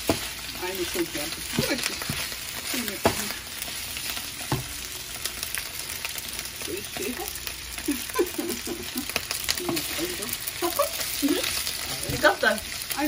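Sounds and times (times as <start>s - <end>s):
pasta sizzling in a skillet: 0.0s - 13.0s.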